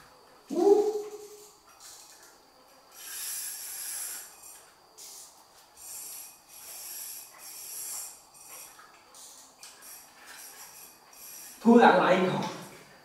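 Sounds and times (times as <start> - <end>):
fishing reel whirring: 2.9 - 12.2.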